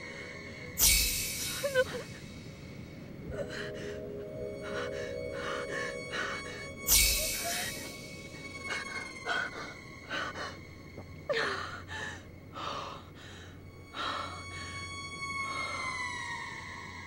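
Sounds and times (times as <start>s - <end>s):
faint steady high tone: 0.0s - 10.8s.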